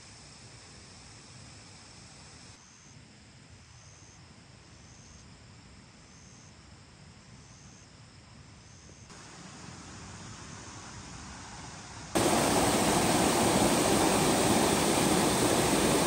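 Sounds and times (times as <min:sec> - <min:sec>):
insect chirping: 0:00.2 - 0:16.0
running water rushing: 0:12.2 - 0:16.0.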